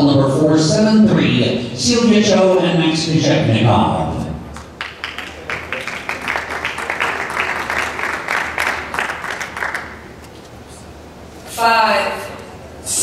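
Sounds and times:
audience applauding: 0:04.6 - 0:10.2.

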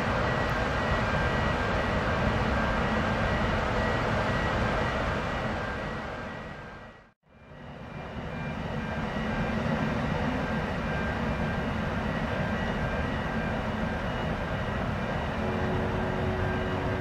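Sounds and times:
ferry engines rumbling: 0:13.4 - 0:17.0.

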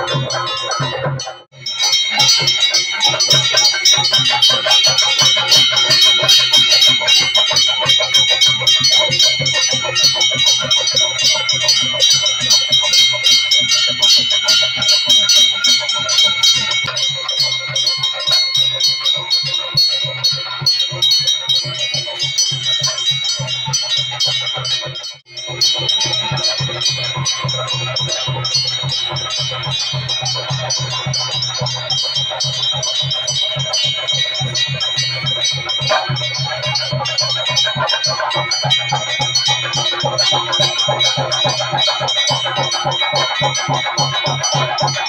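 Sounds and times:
cymbals ringing: 0:00.0 - 0:45.0
drums beaten fast: 0:00.0 - 0:45.0.

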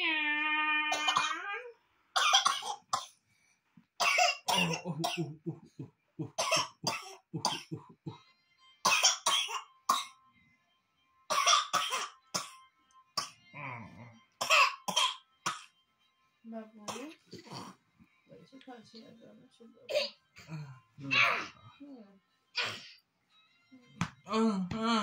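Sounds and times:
small child coughing: 0:00.9 - 0:01.6, 0:02.2 - 0:03.2, 0:04.0 - 0:05.6, 0:06.4 - 0:07.8, 0:08.9 - 0:10.1, 0:11.3 - 0:12.6, 0:14.4 - 0:15.7, 0:16.9 - 0:17.8, 0:19.9 - 0:21.5, 0:22.6 - 0:23.0.

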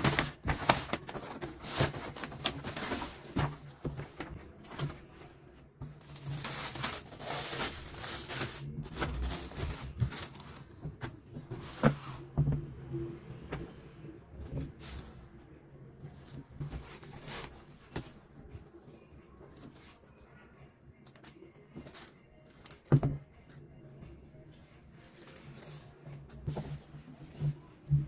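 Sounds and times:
paper rustling and crinkling: 0:00.0 - 0:12.4, 0:16.1 - 0:18.2.

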